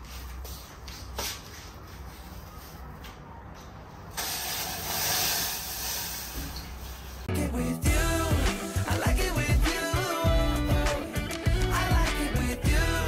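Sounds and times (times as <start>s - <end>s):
gas burner flame hissing: 4.1s - 7.3s.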